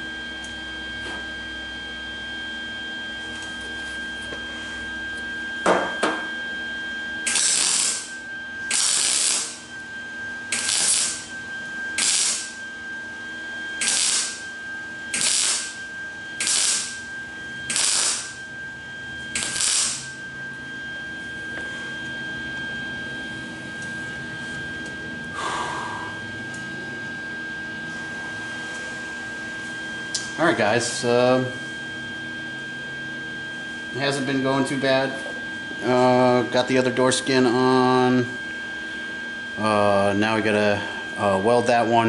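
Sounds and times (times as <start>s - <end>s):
welder crackling bursts: 7.2s - 8.1s, 8.7s - 9.7s, 10.5s - 11.3s, 12.0s - 12.6s, 13.8s - 14.4s, 15.1s - 15.8s, 16.4s - 17.0s, 17.7s - 18.4s, 19.4s - 20.2s.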